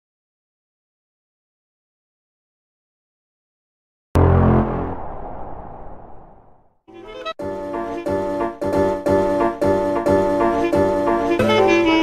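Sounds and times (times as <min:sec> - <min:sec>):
deep musical hit: 0:04.2 - 0:06.7.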